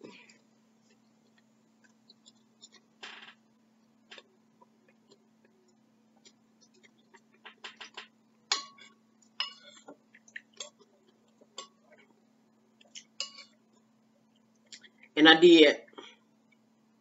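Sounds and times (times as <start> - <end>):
spoon clinking on ceramic bowl: 13.2 - 13.6.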